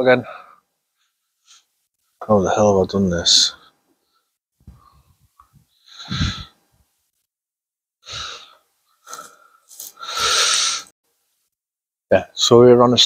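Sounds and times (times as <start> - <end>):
man breathing out heavily: 5.8 - 6.6, 8.0 - 10.9.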